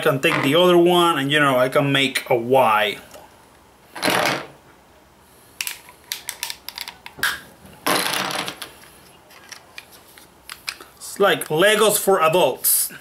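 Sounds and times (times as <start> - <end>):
plastic pieces clicking together: 5.6 - 7.4.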